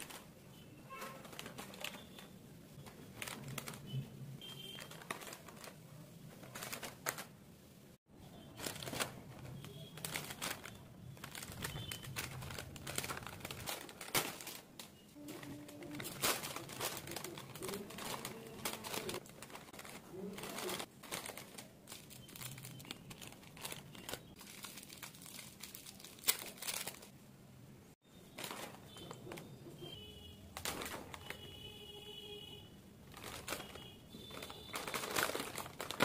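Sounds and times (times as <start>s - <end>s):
snack packets crinkling: 1.2s - 5.8s, 8.5s - 27.1s, 30.6s - 31.6s, 33.0s - 36.0s.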